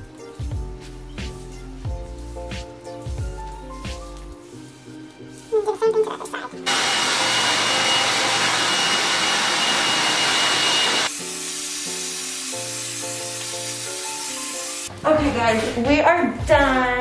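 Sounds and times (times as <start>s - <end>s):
hair dryer blowing: 6.7s - 12.9s.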